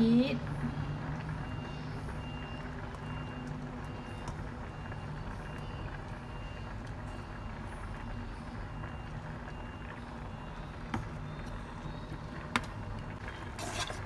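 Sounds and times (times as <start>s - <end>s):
reversing alarm beeps: 0.4s - 13.1s.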